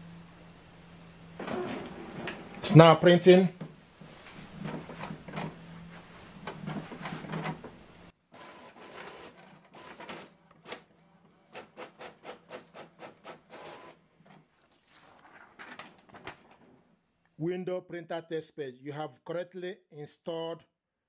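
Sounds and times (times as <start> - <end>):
inkjet printer whirring and clicking: 8.4 - 14.0.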